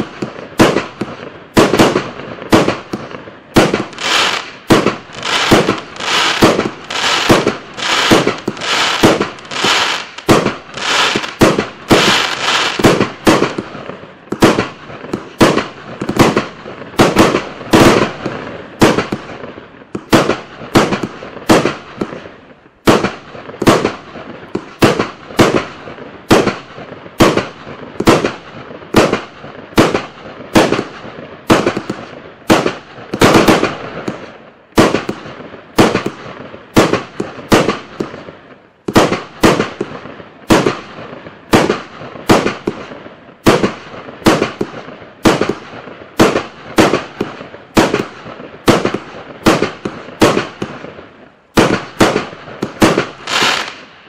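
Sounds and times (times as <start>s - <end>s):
fireworks bangs: 0.0s - 54.0s.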